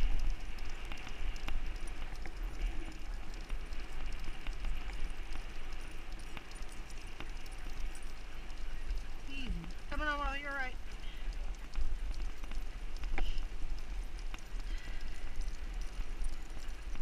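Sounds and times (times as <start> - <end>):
light clicks and taps: 0.0 - 17.0
wheels rolling over wet asphalt: 0.0 - 17.0
wind rumbling on microphone: 0.0 - 17.0.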